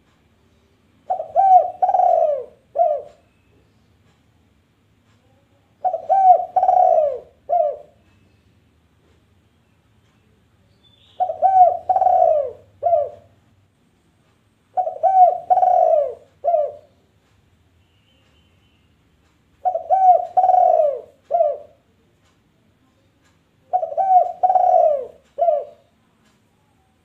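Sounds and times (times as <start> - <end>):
dove cooing: 1.1 - 3.2, 5.8 - 8.0, 11.2 - 13.4, 14.8 - 16.9, 19.6 - 21.8, 23.7 - 25.9.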